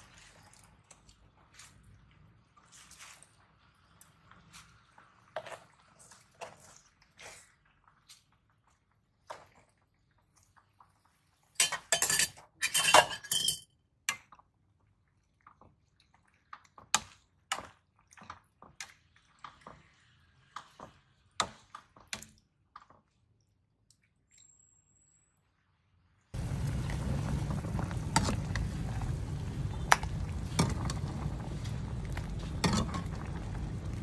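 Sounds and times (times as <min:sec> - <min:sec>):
metal ladle clinking on pot: 0:11.6 - 0:13.6.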